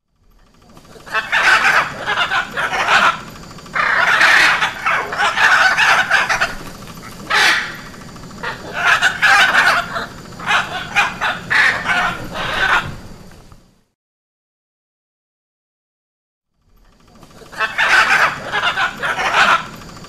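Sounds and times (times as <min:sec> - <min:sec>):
macaws squawking: 0:00.6 - 0:13.4, 0:17.1 - 0:20.0.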